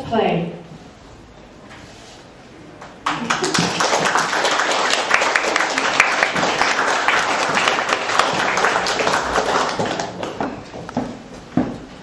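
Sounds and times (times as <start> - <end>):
audience applauding: 3.0 - 10.7.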